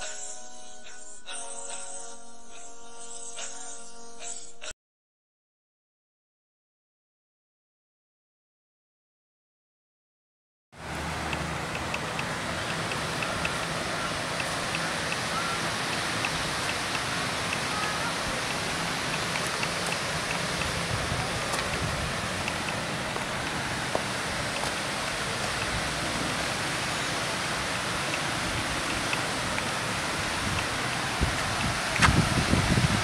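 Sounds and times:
water rushing over weir: 0:10.8 - 0:33.0.

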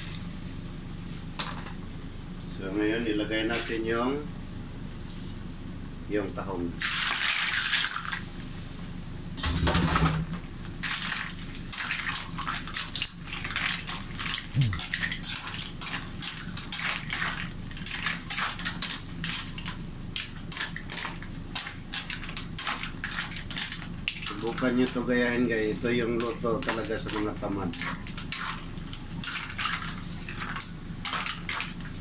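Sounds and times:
mussel shells clattering in pot: 0:25.7 - 0:31.9.

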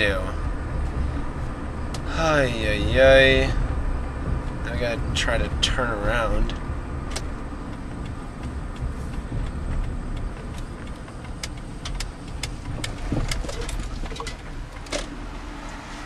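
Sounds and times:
car engine and road noise: 0:00.0 - 0:16.0
sharp clicks: 0:06.5 - 0:15.1.

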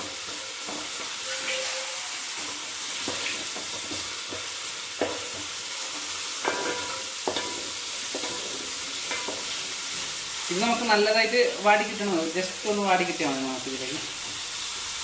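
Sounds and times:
spatula scraping a pan: 0:00.0 - 0:10.2
onions sizzling in hot oil: 0:00.0 - 0:15.0.

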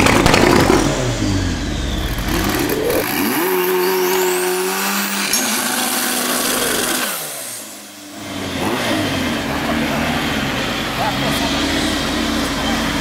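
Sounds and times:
car engine revving: 0:00.0 - 0:13.0
thin rising whine: 0:01.1 - 0:05.4.

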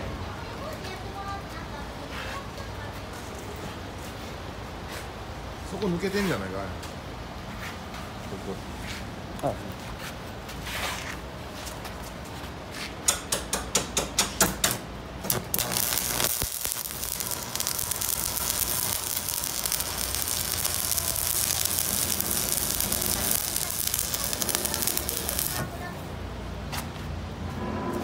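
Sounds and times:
welding arc crackling and hissing: 0:15.2 - 0:25.9.

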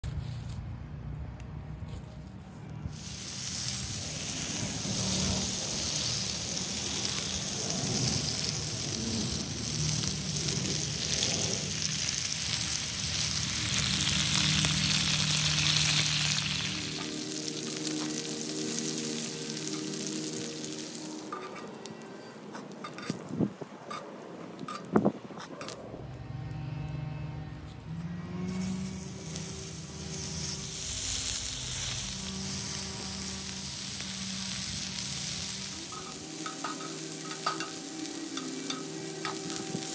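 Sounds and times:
bacon sizzling on griddle: 0:02.9 - 0:21.9, 0:22.6 - 0:23.3, 0:28.6 - 0:39.9.

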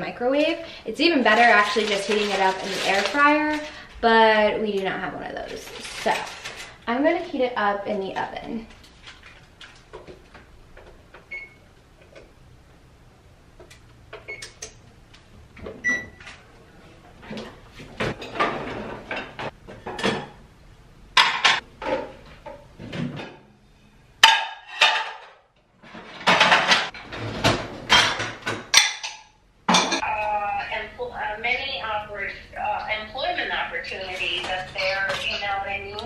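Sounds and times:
cabinet doors opening and closing: 0:17.3 - 0:20.4, 0:21.2 - 0:23.5, 0:25.8 - 0:29.1
dishes and glassware clinking: 0:27.9 - 0:30.0.

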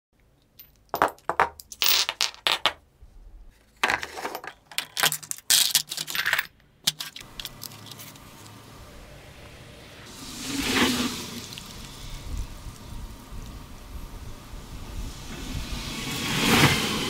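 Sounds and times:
metal parts clinking into plastic tub: 0:03.8 - 0:08.1.

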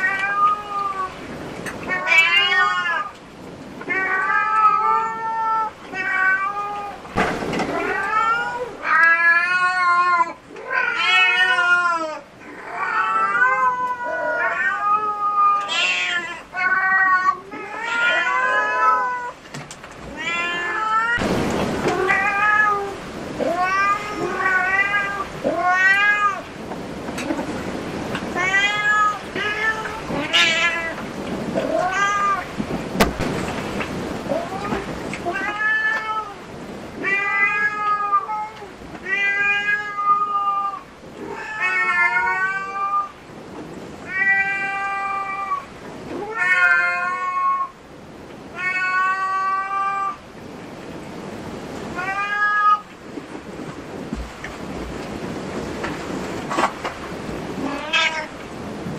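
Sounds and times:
cat meowing: 0:00.0 - 0:01.2, 0:01.9 - 0:03.2, 0:03.8 - 0:07.0, 0:07.7 - 0:19.4, 0:20.1 - 0:21.2, 0:21.9 - 0:26.5, 0:28.3 - 0:32.6, 0:34.3 - 0:36.4, 0:37.0 - 0:43.2, 0:44.1 - 0:47.8, 0:48.5 - 0:50.2, 0:52.0 - 0:52.9, 0:57.6 - 0:58.4.

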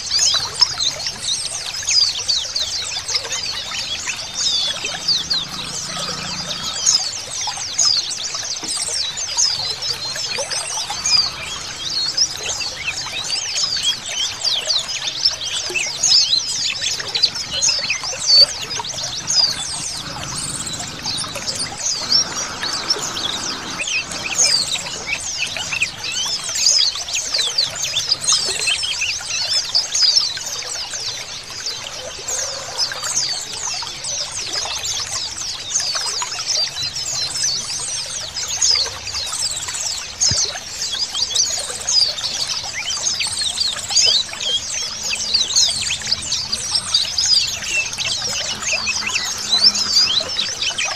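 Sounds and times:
birds chirping and twittering: 0:00.0 - 0:50.9
trickling water: 0:00.0 - 0:50.9.

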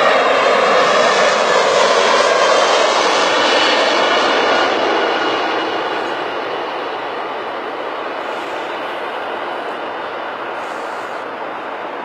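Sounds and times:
jet airliner passing low: 0:00.0 - 0:12.0.

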